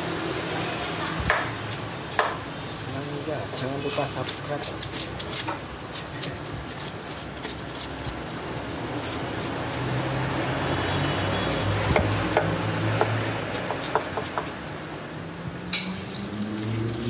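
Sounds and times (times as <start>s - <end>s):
knife scraping fish scales: 3.6s - 14.7s.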